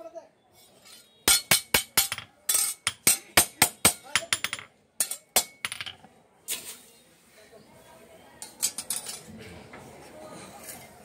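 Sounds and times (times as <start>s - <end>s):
hammer striking metal blade: 1.3s - 4.3s.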